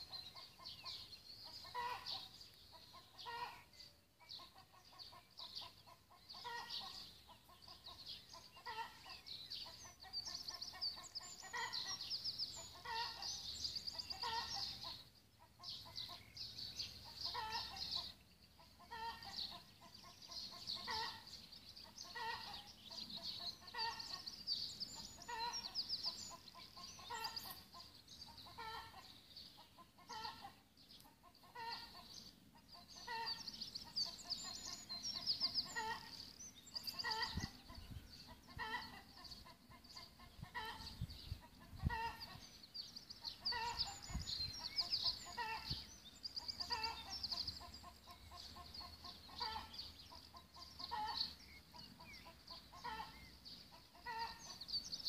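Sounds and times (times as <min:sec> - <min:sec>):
chickens clucking: 0:00.0 - 0:55.0
songbirds chirping: 0:00.0 - 0:55.0.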